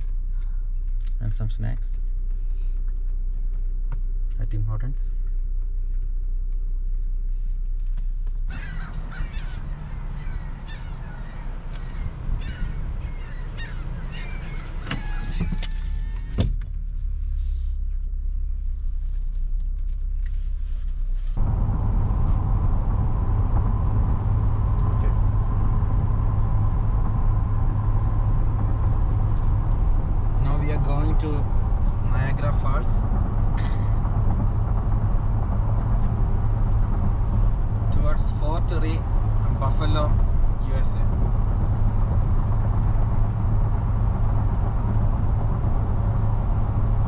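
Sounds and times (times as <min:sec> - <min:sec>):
car idling: 0:00.0 - 0:47.0
road and engine noise in car: 0:00.0 - 0:47.0
birds chirping: 0:08.5 - 0:16.3.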